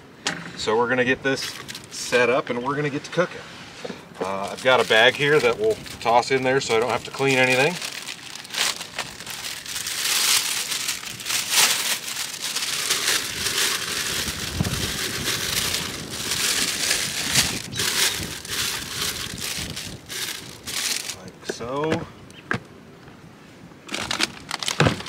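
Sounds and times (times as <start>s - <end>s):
plastic bag crinkling: 1.4s - 2.0s, 4.2s - 21.3s, 23.9s - 25.0s.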